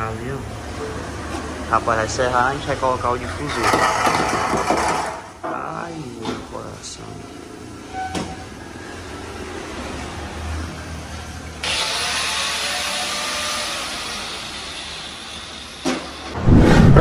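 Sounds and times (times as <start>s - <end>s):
low workshop hum: 0.0s - 17.0s
power saw hissing through metal pipe: 11.6s - 16.4s.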